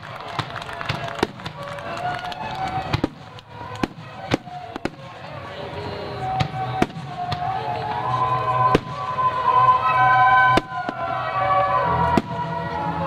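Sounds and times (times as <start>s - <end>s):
light firework pops: 0.0s - 5.1s
music with long held notes: 1.1s - 13.0s.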